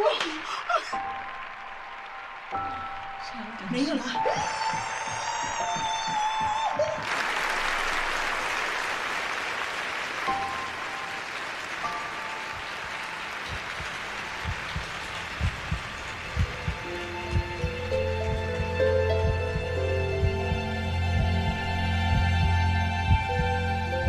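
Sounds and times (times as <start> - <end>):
large audience applauding: 0.0 - 20.3
soft musical notes: 10.2 - 24.0
low thumps: 13.5 - 24.0.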